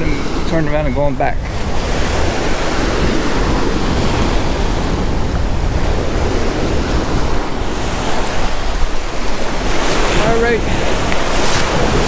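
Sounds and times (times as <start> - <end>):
surf washing onto beach: 0.0 - 12.0
wind buffeting microphone: 0.0 - 12.0.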